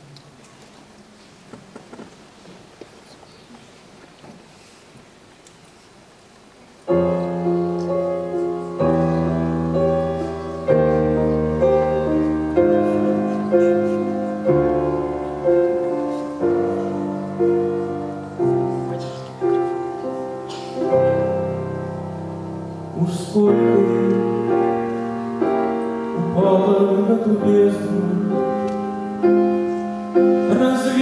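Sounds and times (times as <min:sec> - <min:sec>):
grand piano chords: 0:06.8 - 0:31.0.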